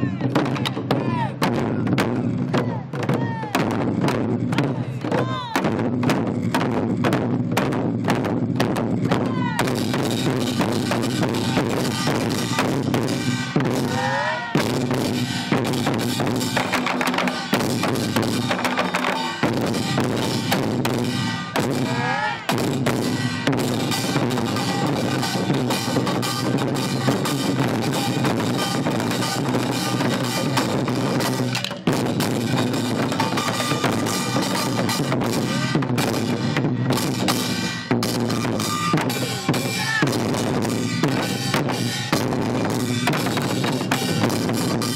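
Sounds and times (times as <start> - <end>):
drum ensemble playing: 0.0 - 44.9.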